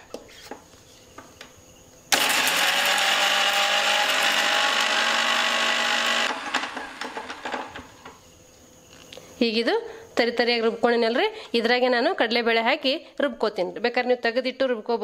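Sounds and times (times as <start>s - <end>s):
electric mixer grinder running: 2.1s - 7.8s
grinder rattle: 2.1s - 7.9s.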